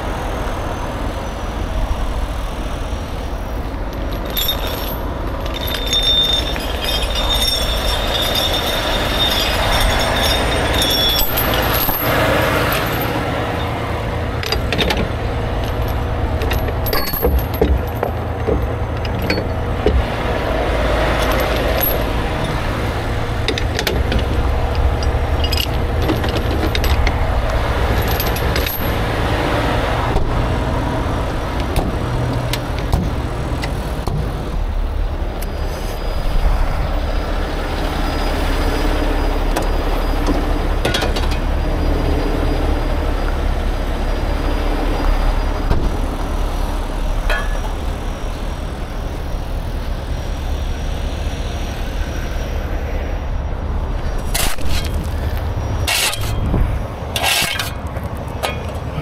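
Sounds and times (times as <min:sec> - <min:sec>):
diesel engine idling: 0:00.0 - 0:59.0
metal chains clinking and rattling: 0:03.8 - 0:13.6, 0:14.4 - 0:20.0, 0:21.0 - 0:29.1, 0:46.5 - 0:52.6, 0:54.0 - 0:58.9.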